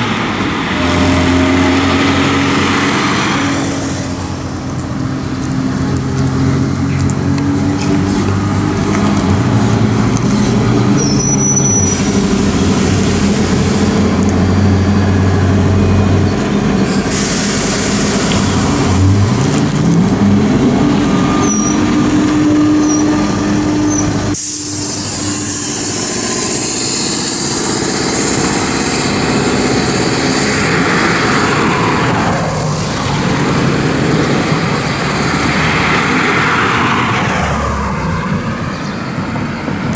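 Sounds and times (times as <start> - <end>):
traffic noise: 0.0 - 39.9
trolleybus electric hum: 0.0 - 39.9
compressed air hisses: 16.9 - 19.2, 24.0 - 30.6.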